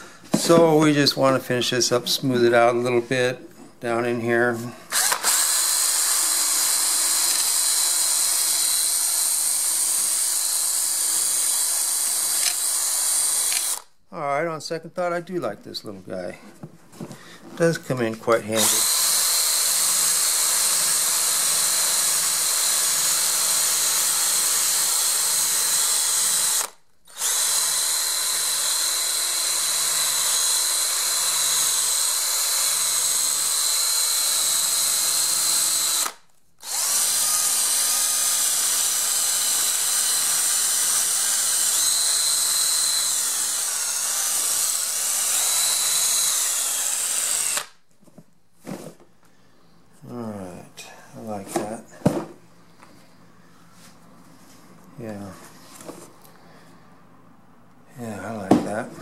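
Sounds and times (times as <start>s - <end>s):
drill sanding foam rubber: 4.9s - 13.9s, 18.5s - 47.8s.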